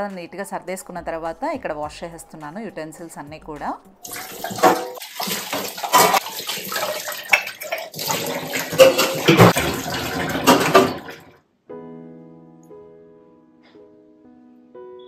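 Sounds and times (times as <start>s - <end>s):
tap water running into sink: 4.0s - 11.4s
dishes clattering against sink: 4.3s - 11.3s.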